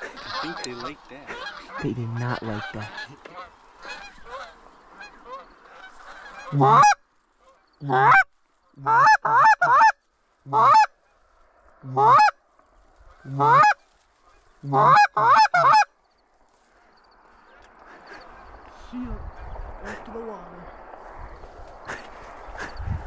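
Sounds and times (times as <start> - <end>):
geese chattering: 0.0 - 11.2, 11.8 - 12.4, 13.0 - 16.0, 16.7 - 20.7, 21.4 - 23.0
geese honking: 0.0 - 12.4, 13.0 - 16.0, 16.6 - 18.7, 21.4 - 22.8.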